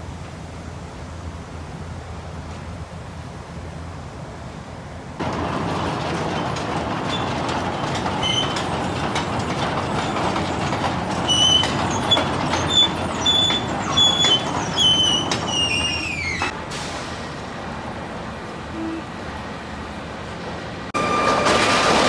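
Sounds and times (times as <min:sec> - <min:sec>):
industrial mill noise: 0:05.2 - 0:22.0
metal-on-metal squeals: 0:07.0 - 0:09.0, 0:09.9 - 0:16.5, 0:21.0 - 0:21.8.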